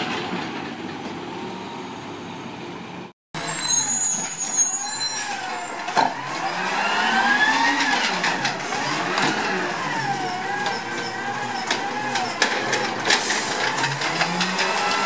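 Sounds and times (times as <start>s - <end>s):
brakes squealing: 3.4s - 15.0s
garbage truck engine: 3.4s - 15.0s.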